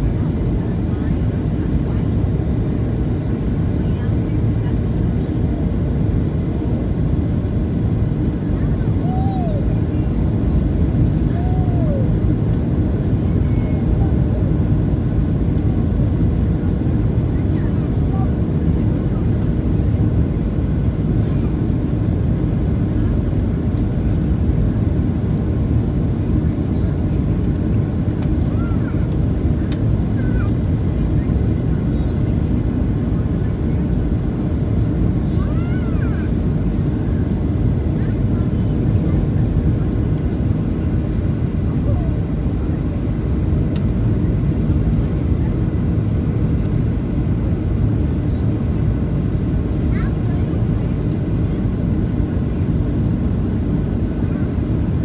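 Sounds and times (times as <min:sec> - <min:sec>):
airplane engine rumble in cabin: 0:00.0 - 0:55.0
faint tick: 0:29.1 - 0:29.8.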